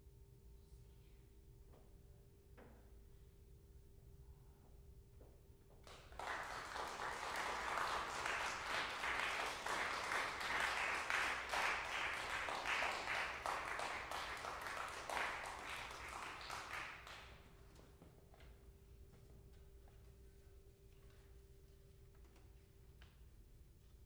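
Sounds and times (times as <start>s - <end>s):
audience applauding: 5.9s - 17.4s.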